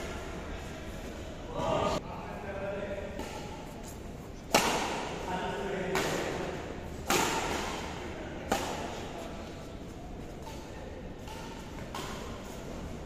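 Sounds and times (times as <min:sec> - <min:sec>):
rackets hitting shuttlecock: 0:03.1 - 0:03.7, 0:04.5 - 0:05.2, 0:05.8 - 0:09.1, 0:10.4 - 0:13.0.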